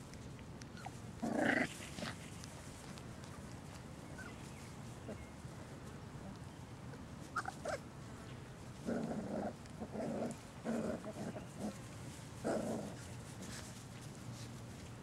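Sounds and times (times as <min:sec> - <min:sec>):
puppies growling: 0:00.8 - 0:02.5, 0:08.8 - 0:13.6.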